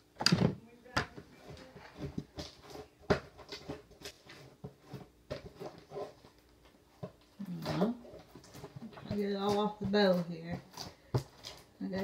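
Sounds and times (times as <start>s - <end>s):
slime scraping in plastic container: 1.1s - 6.4s.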